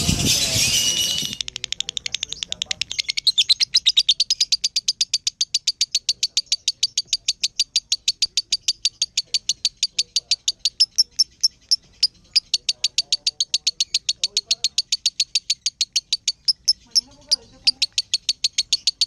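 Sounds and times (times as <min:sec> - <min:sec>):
lovebird rapid high chirps: 0:00.0 - 0:19.0.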